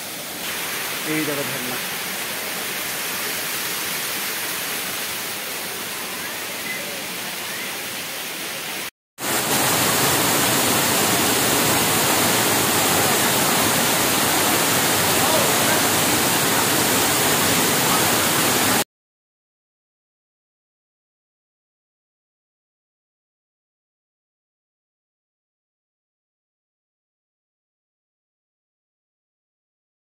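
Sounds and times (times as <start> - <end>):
waterfall pouring onto rocks: 0.2 - 6.0, 9.2 - 18.8.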